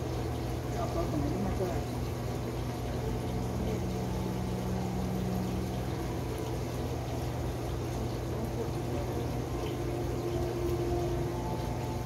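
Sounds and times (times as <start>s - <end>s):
aquarium pump humming: 0.0s - 12.0s
water noise: 0.0s - 12.0s
higher tone: 3.1s - 12.0s.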